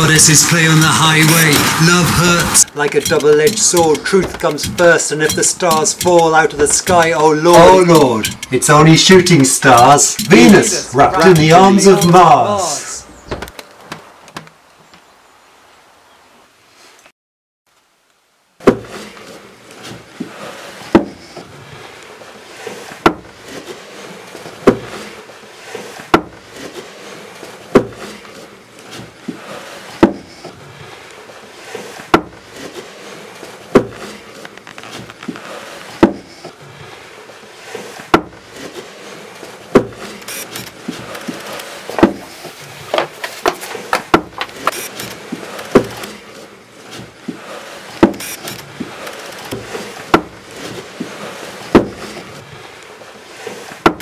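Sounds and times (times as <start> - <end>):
sharp knocks: 0.7 - 12.3, 18.6 - 19.0, 20.9 - 21.2, 23.0 - 23.4, 26.1 - 26.4, 27.7 - 28.0, 32.1 - 32.4, 33.7 - 34.0, 36.0 - 36.3, 39.7 - 40.1, 40.9 - 42.3, 42.9 - 46.1, 48.0 - 50.4, 51.7 - 52.2
steady hiss: 38.5 - 53.7.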